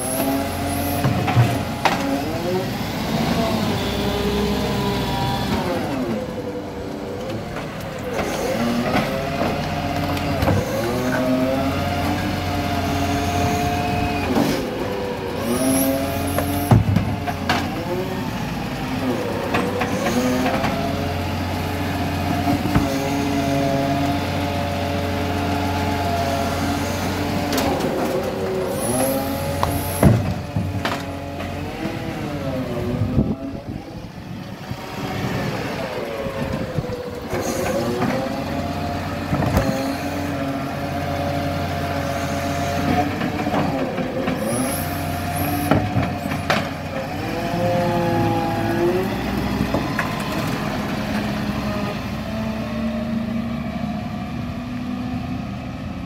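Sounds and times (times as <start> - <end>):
garbage truck engine revving: 0.0 - 56.0.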